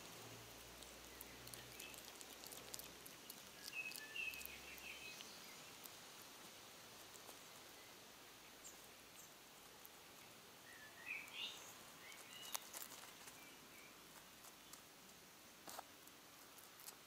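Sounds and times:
outdoor background hiss: 0.0 - 17.0
hedgehog chewing and licking: 0.1 - 7.8, 12.0 - 13.4.

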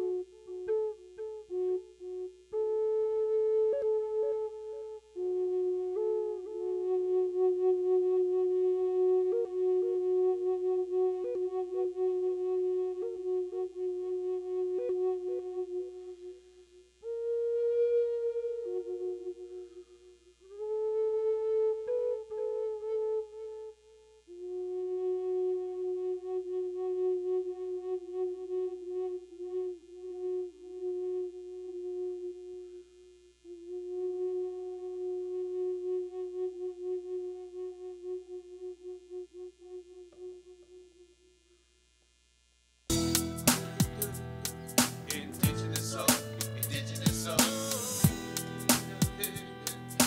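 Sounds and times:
flute playing long held notes: 0.0 - 41.2, 42.9 - 50.0
loud music with a beat: 42.9 - 50.0.

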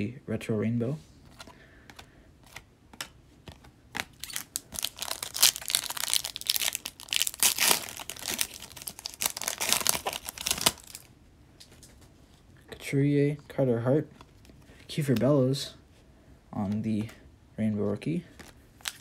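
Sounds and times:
foil pack tearing and crinkling: 4.1 - 11.1.

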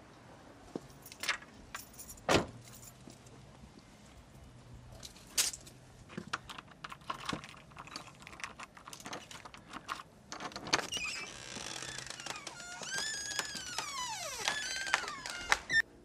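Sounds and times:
keys jangling: 0.9 - 3.2, 6.5 - 11.1.

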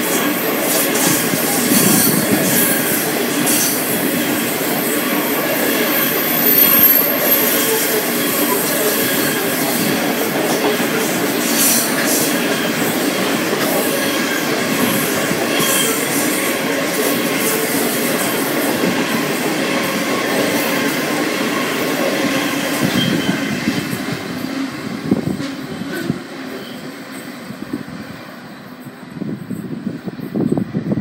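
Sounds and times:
steel wheels rumbling on rail: 0.0 - 31.0
wheels squealing: 0.8 - 16.6, 21.5 - 23.8.

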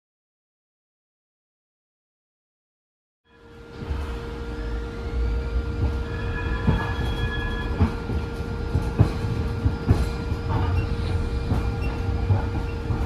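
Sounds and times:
light rail car rumble: 3.3 - 13.0.

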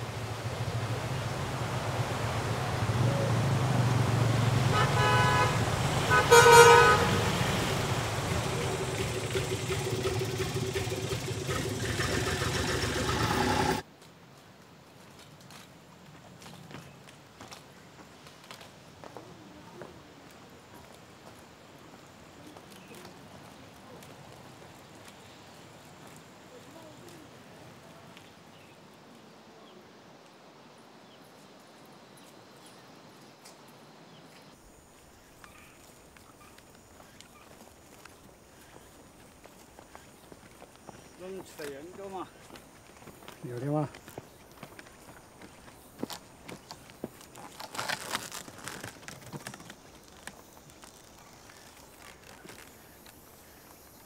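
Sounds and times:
faint outdoor ambience: 0.0 - 54.0
footsteps on concrete: 15.0 - 21.4, 35.4 - 53.8.

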